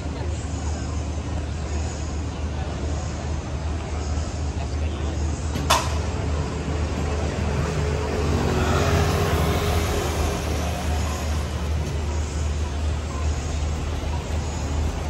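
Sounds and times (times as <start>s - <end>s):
passing cars and motorcycles: 5.6s - 15.0s.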